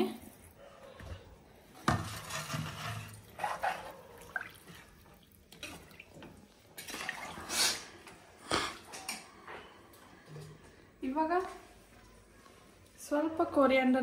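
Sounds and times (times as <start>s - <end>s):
food sloshing as spoon stirs: 1.6s - 8.1s.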